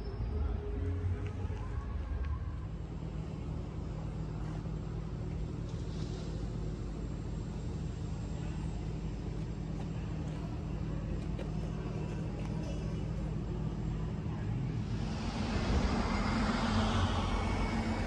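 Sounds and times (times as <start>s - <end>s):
low engine hum: 0.0s - 18.0s.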